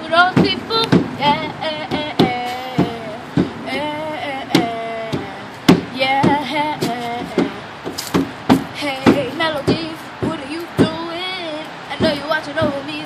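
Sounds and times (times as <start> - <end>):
person singing wordless notes: 0.0 - 7.6
sharp knocking beat: 0.4 - 3.6, 4.6 - 6.4.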